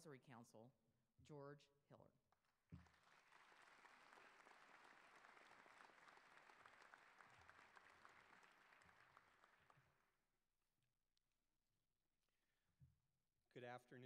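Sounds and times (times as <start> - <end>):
faint audience applause: 2.8 - 10.1.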